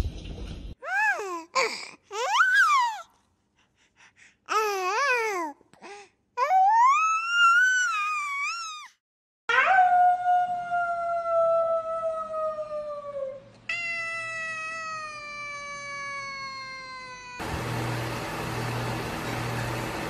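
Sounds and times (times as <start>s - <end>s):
cat meowing: 13.7s - 17.4s.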